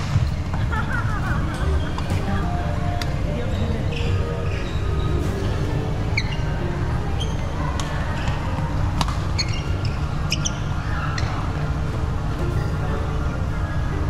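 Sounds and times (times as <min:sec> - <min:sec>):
court shoes squeaking: 0:00.0 - 0:13.8
low rumble in hall: 0:00.0 - 0:14.0
racket striking shuttlecock: 0:07.8 - 0:09.5.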